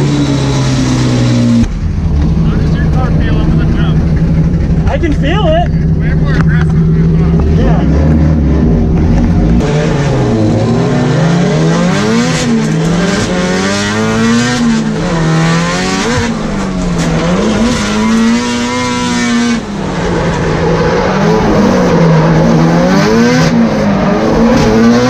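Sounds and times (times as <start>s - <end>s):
car engine revving: 0.0s - 25.0s.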